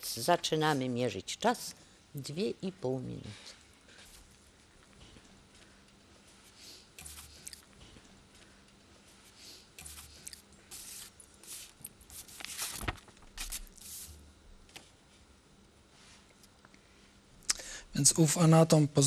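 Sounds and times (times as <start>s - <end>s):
faint steady hum: 0.0s - 19.0s
paper rustling: 9.8s - 14.9s.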